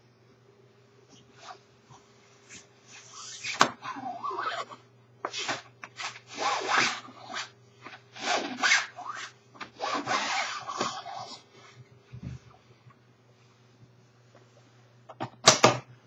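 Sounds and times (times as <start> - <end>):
stick scraping nylon jacket: 2.5 - 3.6, 5.3 - 11.4.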